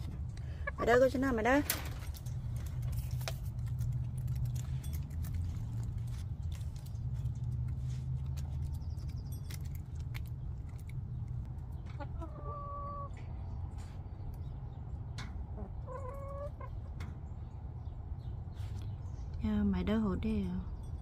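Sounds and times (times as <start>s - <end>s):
hens pecking clicks: 1.8s - 17.1s.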